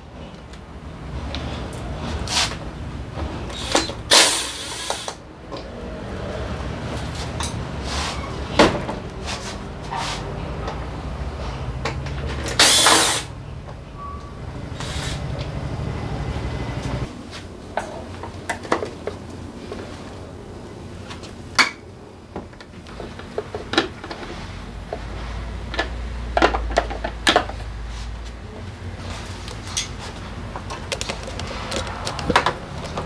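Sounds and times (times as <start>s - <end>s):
short hissing scraping bursts: 12.6s - 13.3s, 14.8s - 15.3s.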